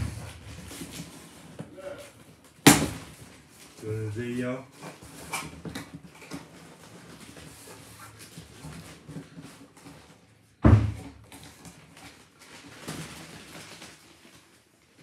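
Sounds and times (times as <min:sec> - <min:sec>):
cardboard and plastic rustling: 0:00.0 - 0:15.0
loud thump: 0:10.6 - 0:11.1.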